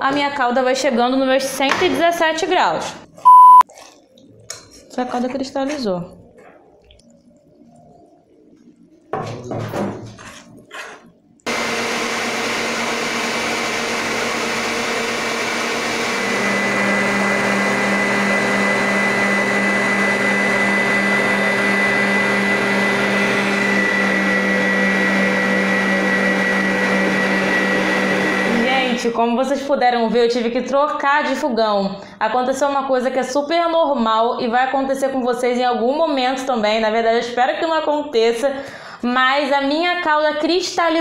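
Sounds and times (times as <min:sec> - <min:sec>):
stand mixer whisking: 0:11.5 - 0:29.0.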